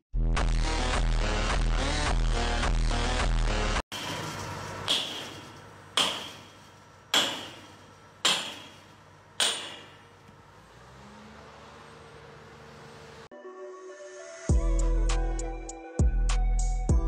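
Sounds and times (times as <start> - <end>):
sledgehammer striking steel: 3.9 - 10.2.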